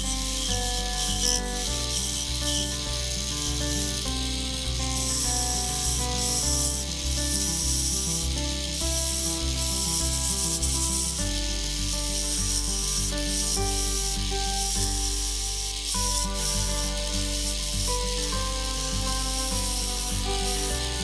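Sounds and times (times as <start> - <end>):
background music: 0.0 - 21.0
sandpaper hissing on lathe: 0.0 - 21.0.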